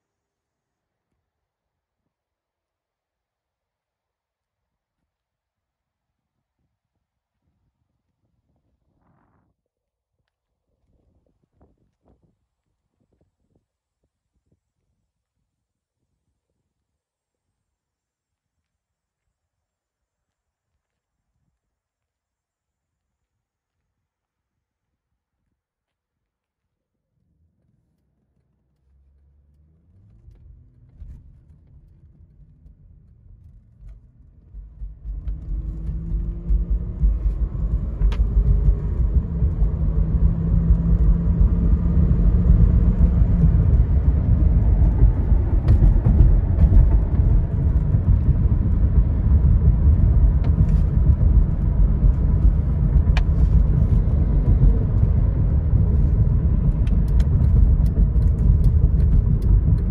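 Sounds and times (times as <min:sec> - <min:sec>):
car engine and tyre noise: 0:26.4 - 0:59.9.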